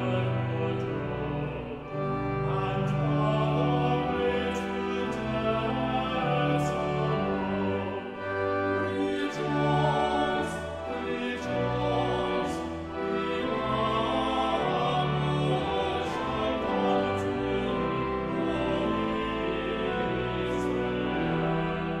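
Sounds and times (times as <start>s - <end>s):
slow music of held chords: 0.0s - 22.0s.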